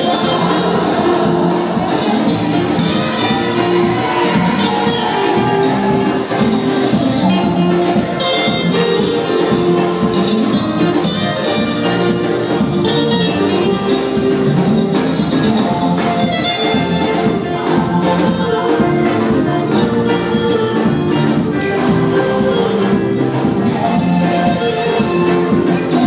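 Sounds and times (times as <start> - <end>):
choir singing: 0.0 - 7.0
drums steady beat: 0.0 - 26.0
electric guitar: 0.0 - 26.0.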